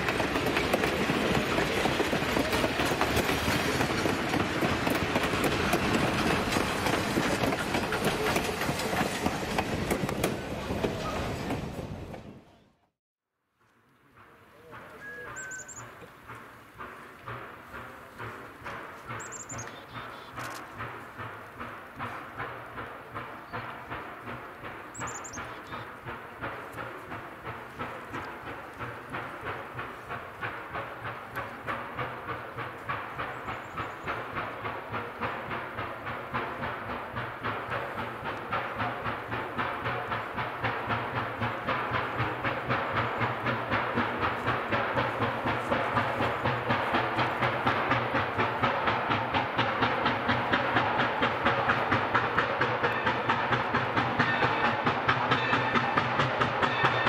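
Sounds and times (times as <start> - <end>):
steam locomotive chuffing: 0.0 - 12.5, 13.8 - 57.0
train rumble: 0.0 - 13.0, 13.6 - 57.0.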